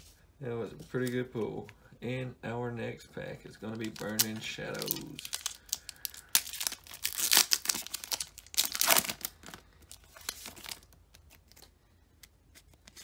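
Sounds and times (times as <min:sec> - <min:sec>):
cards rustling: 0:03.6 - 0:13.0
foil wrapper crinkling and ripping: 0:03.8 - 0:11.7.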